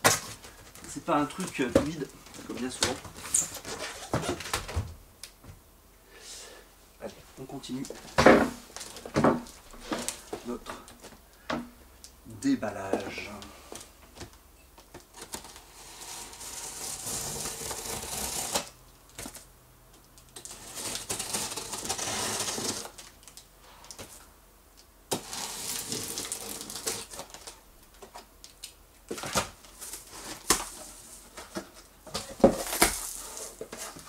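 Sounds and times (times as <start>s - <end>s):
utility knife slitting packing tape: 16.2s - 18.7s.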